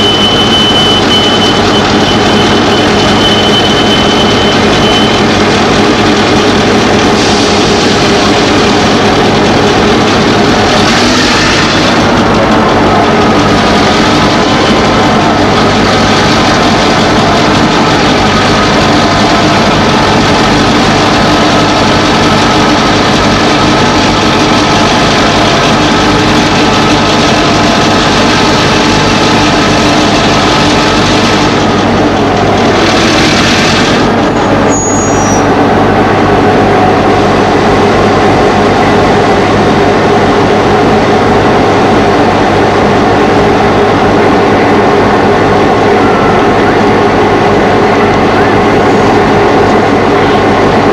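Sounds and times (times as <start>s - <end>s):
diesel locomotive idling: 0.0s - 50.9s.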